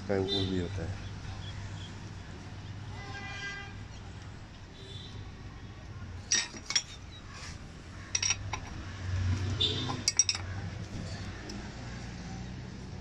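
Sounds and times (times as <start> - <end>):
steel parts clinking: 6.2 - 7.0, 8.1 - 8.8, 9.8 - 10.5.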